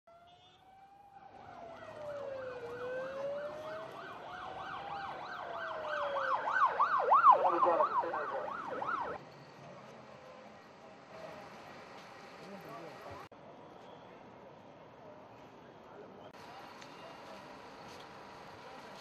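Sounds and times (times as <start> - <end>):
siren wailing: 0.1 - 9.2
siren yelping: 0.1 - 9.2.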